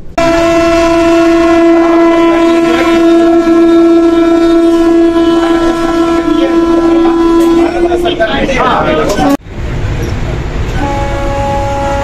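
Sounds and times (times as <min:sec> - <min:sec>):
loud train horn blast: 0:00.0 - 0:08.3, 0:10.7 - 0:12.0.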